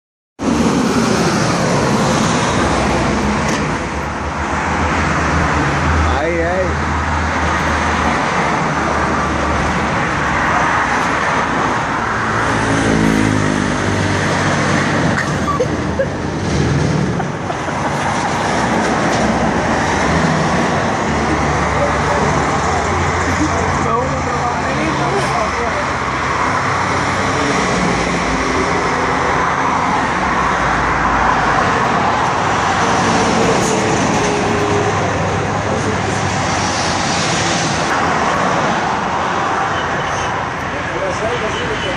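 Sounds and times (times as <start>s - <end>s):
road traffic: 0.4s - 41.9s.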